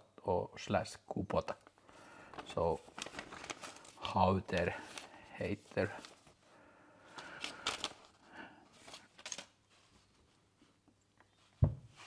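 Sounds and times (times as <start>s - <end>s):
paper rustling: 2.2s - 10.5s.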